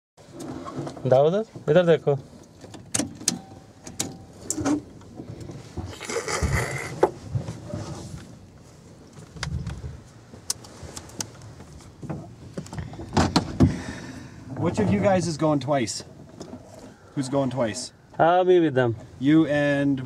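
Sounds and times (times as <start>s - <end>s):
handling clicks and knocks: 2.4s - 5.6s.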